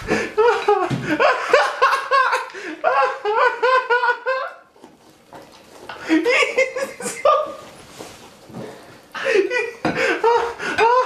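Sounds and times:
people laughing hard: 0.0s - 4.7s, 6.0s - 7.7s, 9.2s - 11.0s.

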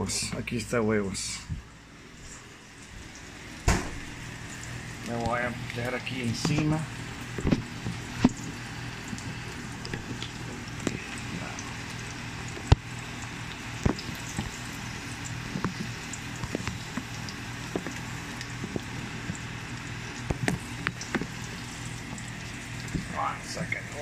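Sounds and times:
rice sizzling in a pan: 4.0s - 23.2s.

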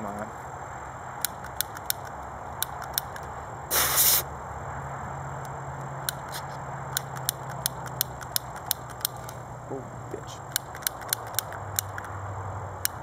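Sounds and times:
short loud hiss: 3.7s - 4.3s.

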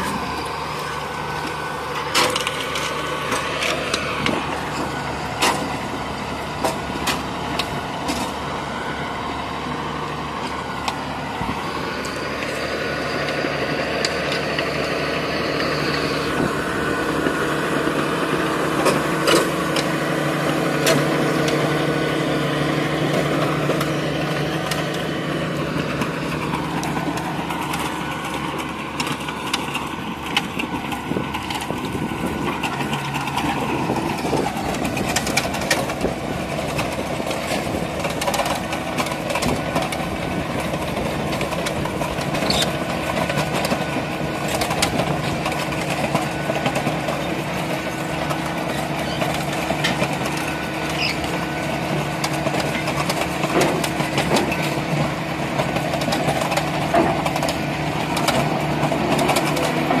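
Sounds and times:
tractor diesel engine running: 0.0s - 60.0s
clicks and knocks of stones: 1.4s - 5.8s, 25.6s - 60.0s.

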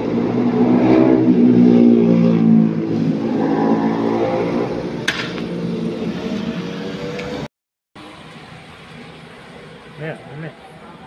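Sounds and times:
passing vehicle engine: 0.0s - 9.2s.

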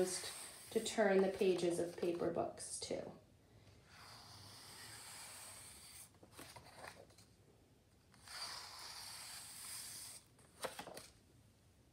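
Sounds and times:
paper sliding and rustling: 8.2s - 11.1s.

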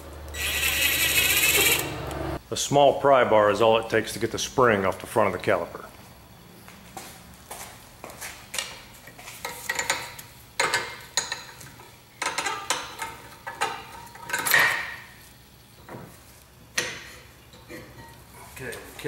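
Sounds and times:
pry bar scraping metal spring: 0.3s - 2.1s.

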